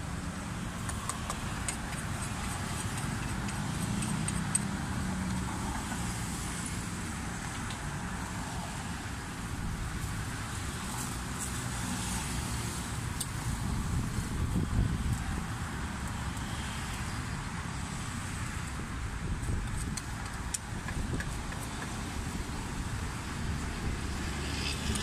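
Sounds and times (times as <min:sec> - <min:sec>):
road traffic rumble: 0:00.0 - 0:25.0
pestle clicking in mortar: 0:00.8 - 0:04.8.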